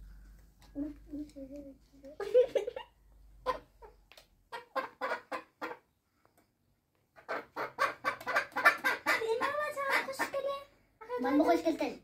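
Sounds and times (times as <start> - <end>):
chickens clucking: 2.7 - 6.0, 7.1 - 11.3.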